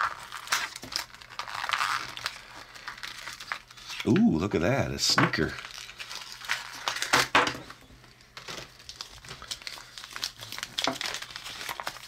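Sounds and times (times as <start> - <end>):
foil packaging crinkling: 0.0 - 12.0.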